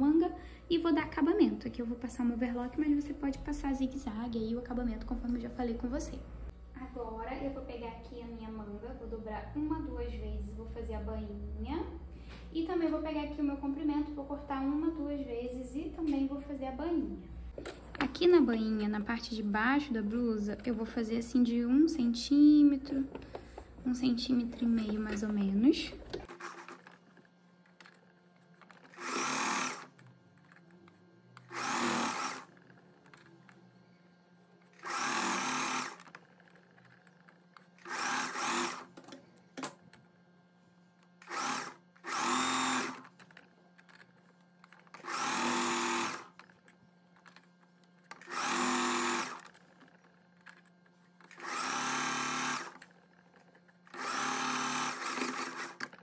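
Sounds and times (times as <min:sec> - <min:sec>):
sewing machine stitching: 0:24.6 - 0:30.8, 0:31.4 - 0:33.5, 0:34.7 - 0:39.0, 0:41.2 - 0:46.6, 0:48.0 - 0:56.0.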